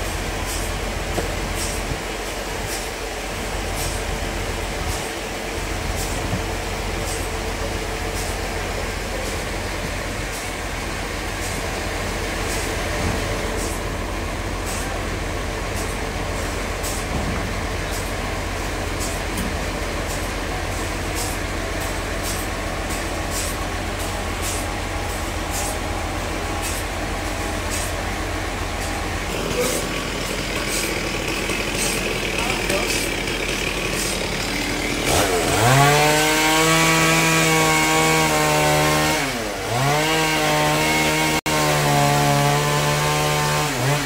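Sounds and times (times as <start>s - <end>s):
bandsaw mechanical hum: 0.0s - 44.0s.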